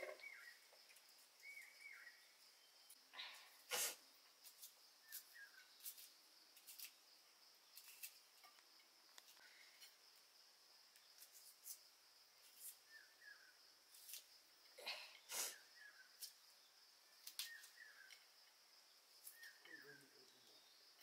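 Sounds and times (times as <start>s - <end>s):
faint high insect drone: 0.0s - 21.0s
onion peeling and cutting clicks: 4.4s - 7.0s, 7.7s - 8.6s, 13.9s - 14.3s, 17.2s - 17.9s
short bird chirps: 17.3s - 18.1s.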